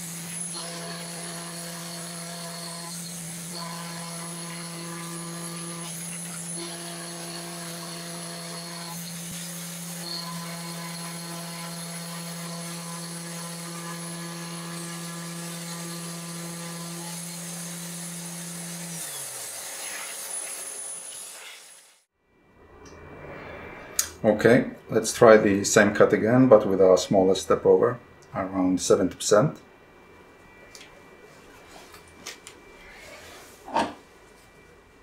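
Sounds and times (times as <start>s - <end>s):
cnc router milling wood: 0.0s - 21.7s
motor winding down: 0.0s - 22.0s.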